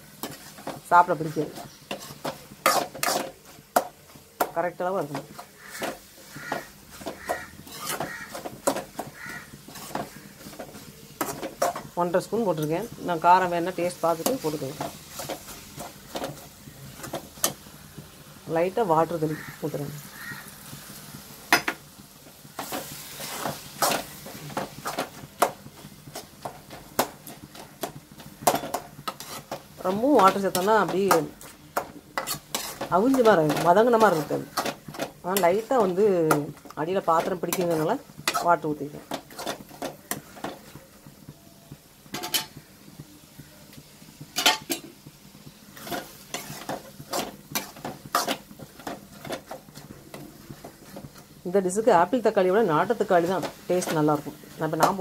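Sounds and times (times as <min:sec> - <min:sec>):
faint sizzle: 0:00.0 - 0:55.0
spoon stirring and scraping vegetables: 0:00.0 - 0:55.0
spoon knocking against pan: 0:03.8 - 0:11.9.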